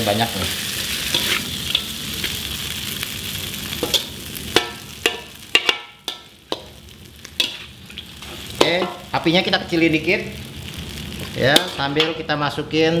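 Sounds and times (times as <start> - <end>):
noodles sizzling in a wok: 0.0 - 13.0
metal spatula scraping a wok: 0.5 - 2.4, 7.3 - 9.1.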